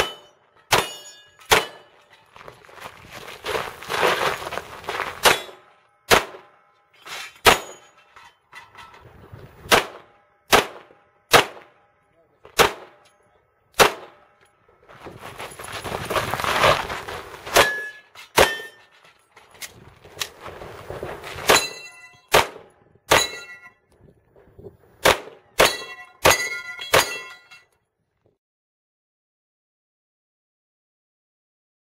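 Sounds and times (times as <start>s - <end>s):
pistol shots: 0.0s - 1.9s, 5.2s - 6.6s, 9.7s - 11.8s, 12.5s - 13.1s, 13.8s - 14.3s, 22.3s - 23.4s, 25.0s - 27.2s
steel targets ringing: 0.0s - 2.2s, 5.2s - 8.6s, 17.5s - 19.0s, 21.5s - 22.4s, 23.1s - 23.8s, 25.5s - 27.7s
rustling noise: 2.2s - 5.3s, 14.8s - 17.6s, 18.8s - 21.5s.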